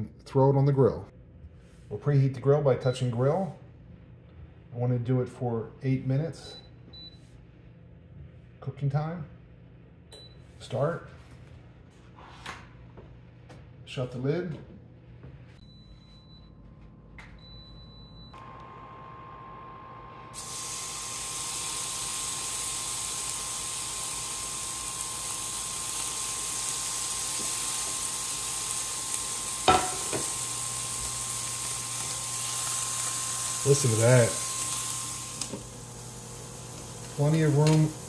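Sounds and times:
steak sizzling on a grill: 20.4 - 38.0.

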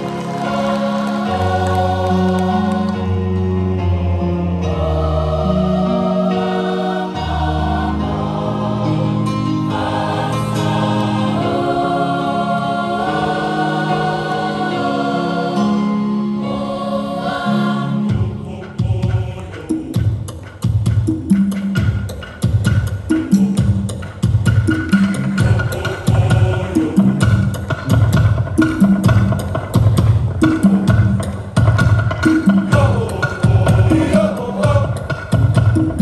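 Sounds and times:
choir singing a carol: 0.0 - 19.9, 25.4 - 27.4, 32.7 - 35.0.

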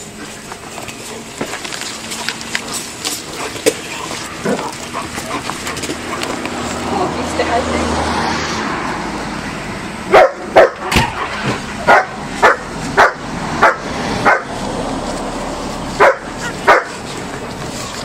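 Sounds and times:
dog yelping: 10.1 - 14.5, 16.0 - 17.0.

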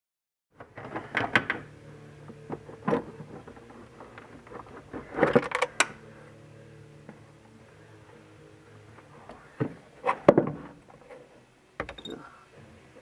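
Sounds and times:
plastic and metal clunks and rattles: 0.6 - 1.7, 2.5 - 5.9, 9.6 - 11.1
steady low hum: 0.6 - 13.0.

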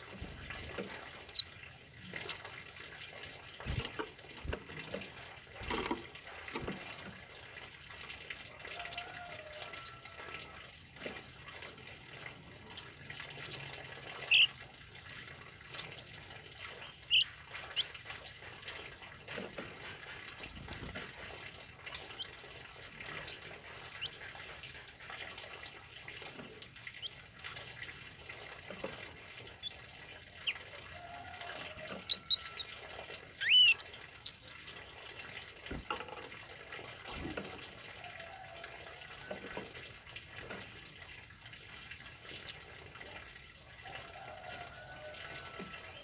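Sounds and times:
bird chirping and twittering: 1.2 - 1.5, 2.2 - 2.5, 12.6 - 18.8, 21.9 - 22.4, 23.0 - 25.0, 25.8 - 26.1, 26.7 - 28.5, 29.4 - 30.7, 31.4 - 32.7, 33.3 - 34.9, 42.4 - 42.9.

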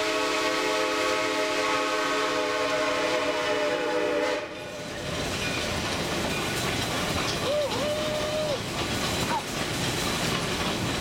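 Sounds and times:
steam locomotive whistle: 0.0 - 4.8, 7.4 - 8.6
train rolling along track: 0.0 - 11.0.

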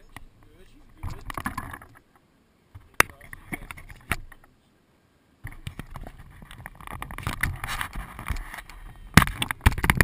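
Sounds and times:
wind noise on microphone: 5.4 - 10.0
camera handling scrapes and knocks: 5.5 - 10.0.

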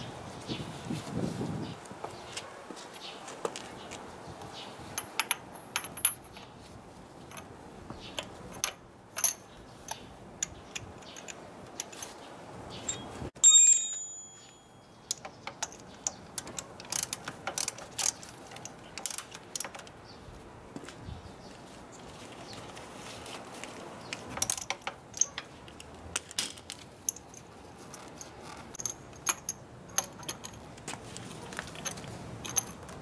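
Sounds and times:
metal tools clicking and clinking: 5.0 - 6.5, 8.2 - 12.2, 12.9 - 19.9, 24.2 - 33.0
sharp ringing metallic clink: 12.9 - 15.2.

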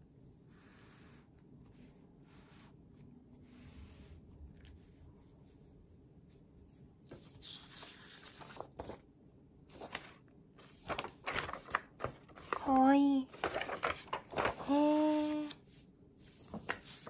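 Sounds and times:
paper rustling and crinkling: 7.1 - 17.0.

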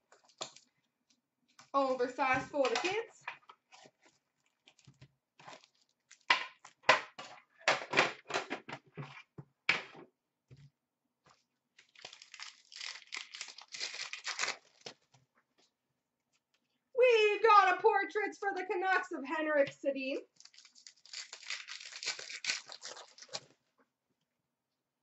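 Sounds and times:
wrappers rustling and tearing: 3.7 - 6.3, 11.8 - 15.1, 20.3 - 23.6
wrapper crinkling: 4.0 - 6.7, 11.8 - 15.2, 20.3 - 23.6.

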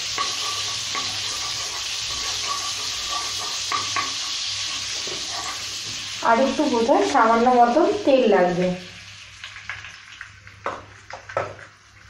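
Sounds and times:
wooden spatula scraping pan: 0.0 - 6.1
butter and oil sizzling: 0.0 - 12.0.

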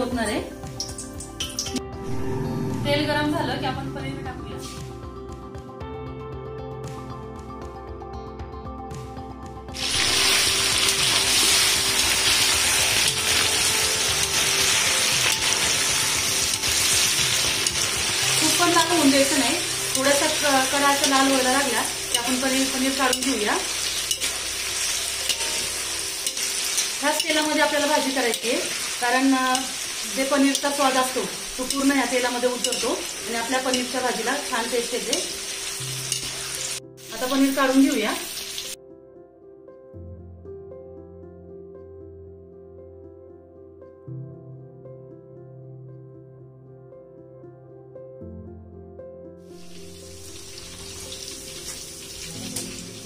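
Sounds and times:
food deep-frying in hot oil: 9.8 - 38.8, 49.6 - 53.0.

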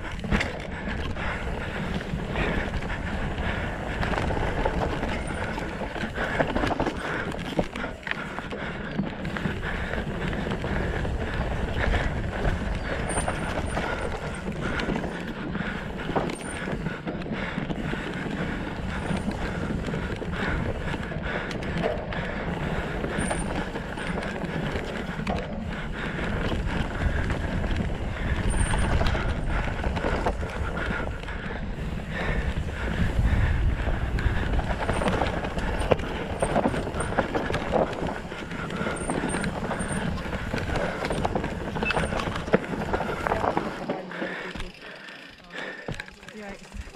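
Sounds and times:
bike rattling and clattering: 0.0 - 46.9
bike tyres rolling over dirt: 0.0 - 46.9.

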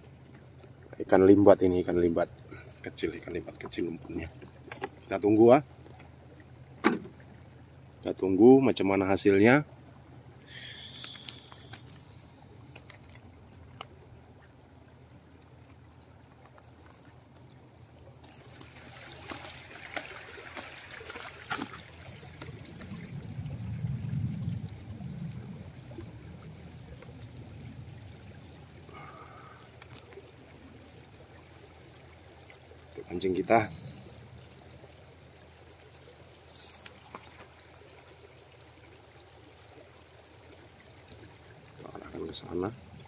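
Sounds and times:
soft trickling water hiss: 0.0 - 43.0
low rumble: 22.5 - 28.6.

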